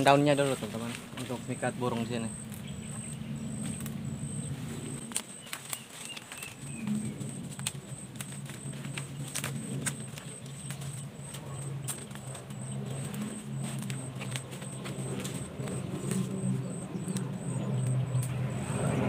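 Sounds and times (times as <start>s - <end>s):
insect chirping: 0.0s - 19.0s
leaves rustling: 0.0s - 19.0s
low steady hum: 0.0s - 19.0s
twigs snapping: 2.4s - 4.0s, 5.0s - 18.4s.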